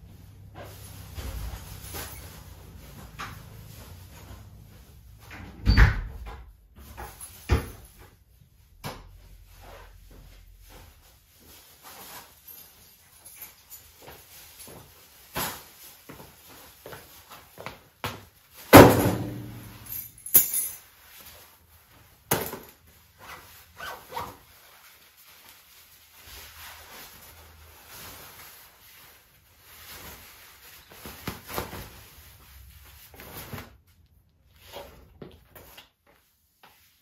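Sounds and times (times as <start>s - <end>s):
soft rustling: 6.8s - 18.6s, 19.5s - 37.0s.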